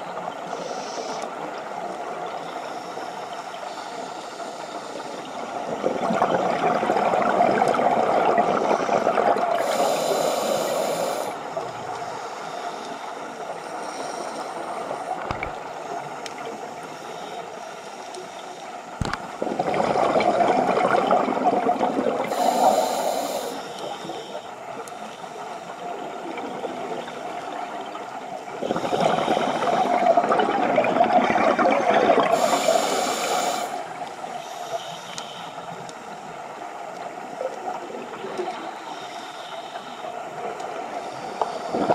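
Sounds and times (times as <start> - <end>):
watery hiss: 0.3 - 18.9, 19.8 - 27.8, 28.4 - 41.9
gurgling regulator bubbles: 5.6 - 11.8, 19.0 - 24.2, 28.5 - 34.1.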